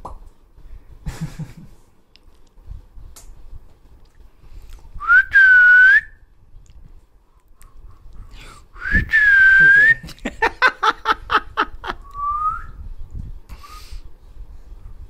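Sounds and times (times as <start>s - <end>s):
person whistling: 5.0s - 6.2s, 8.8s - 10.0s, 12.0s - 12.8s.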